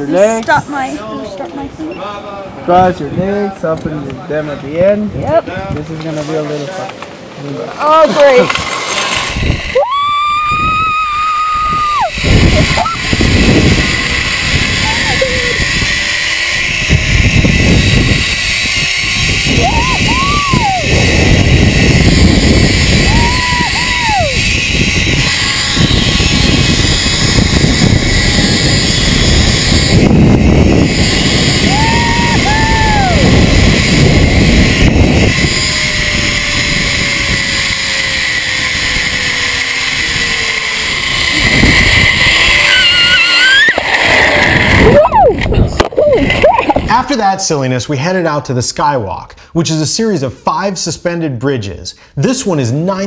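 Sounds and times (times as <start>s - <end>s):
wind buffeting microphone: 2.6s - 6.0s, 9.2s - 47.1s
zipline trolley running on cable: 7.8s - 47.4s
high wavering tone: 9.7s - 14.2s
person crying out: 9.8s - 13.1s, 19.6s - 20.9s, 23.0s - 24.4s, 31.6s - 33.3s, 42.6s - 43.8s, 44.8s - 46.8s.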